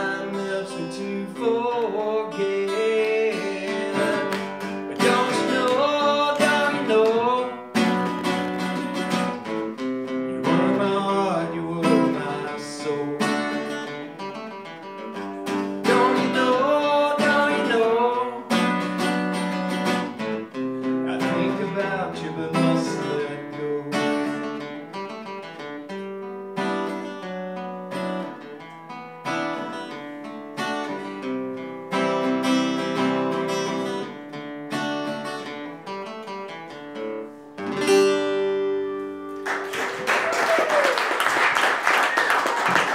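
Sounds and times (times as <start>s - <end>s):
acoustic guitar playing: 0.0s - 40.1s
audience applause: 39.4s - 42.9s.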